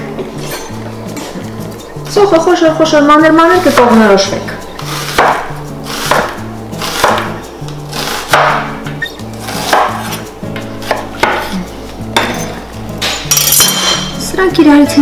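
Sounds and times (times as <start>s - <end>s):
knife slicing onion on board: 4.8s - 11.6s.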